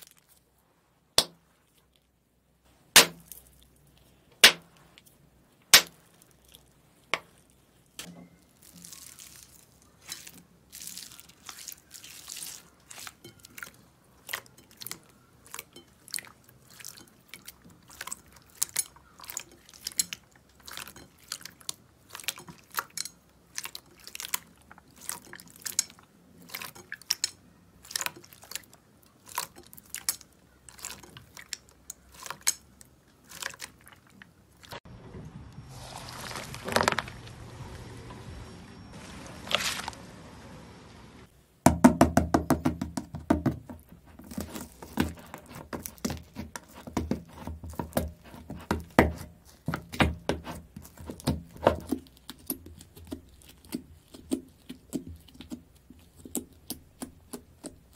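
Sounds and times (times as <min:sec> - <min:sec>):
foam beads crunching: 0:08.4 - 0:13.3, 0:35.7 - 0:37.3, 0:39.4 - 0:40.0.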